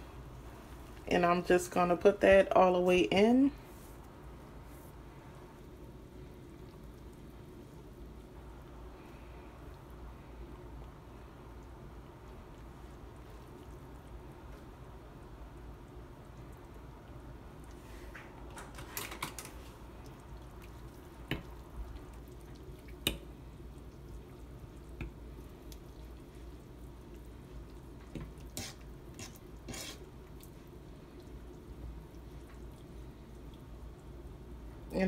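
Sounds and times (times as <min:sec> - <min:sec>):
low steady hum: 0:00.0 - 0:35.0
water sloshing in a pot: 0:03.6 - 0:35.0
splashes and taps against pot: 0:18.1 - 0:23.4.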